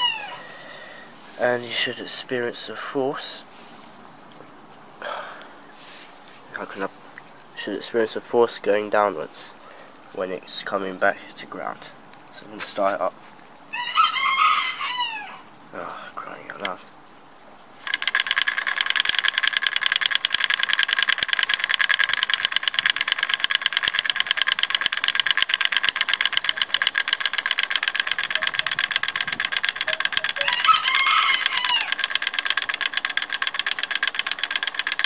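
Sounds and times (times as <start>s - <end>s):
small electric motor brushes rattling: 17.8s - 35.0s.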